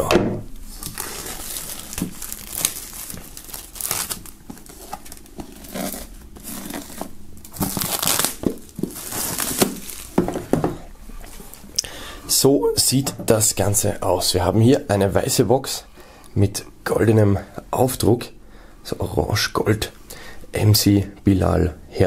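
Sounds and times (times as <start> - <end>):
plastic film tearing and crinkling: 0.7 - 10.4.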